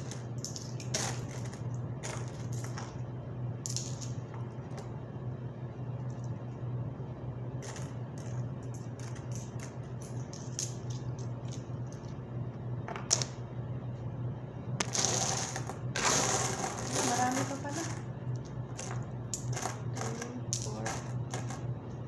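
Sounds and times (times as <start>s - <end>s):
steady low hum: 0.0s - 22.0s
coins clinking: 14.8s - 18.1s, 18.8s - 21.7s
coins sliding across table: 14.9s - 18.0s.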